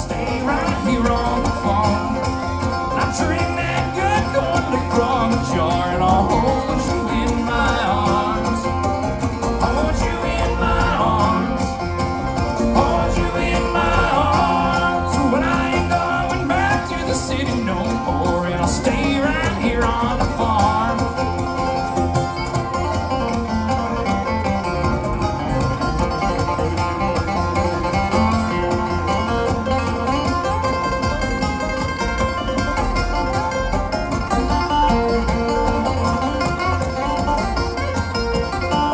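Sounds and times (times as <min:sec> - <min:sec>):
acoustic guitar picking: 0:00.0 - 0:38.9
banjo: 0:00.0 - 0:38.9
bluegrass band playing: 0:00.0 - 0:38.9
mandolin: 0:00.0 - 0:38.9.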